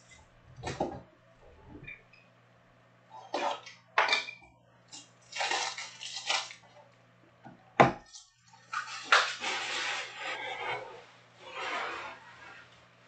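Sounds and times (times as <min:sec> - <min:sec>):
plastic wrapping crinkling: 0:05.2 - 0:06.7.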